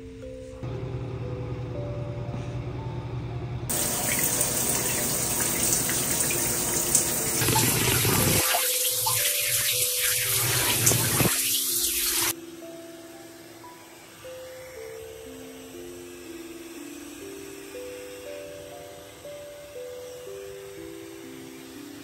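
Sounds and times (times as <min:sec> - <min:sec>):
shower spray hissing on tiles: 0:03.7 - 0:12.4.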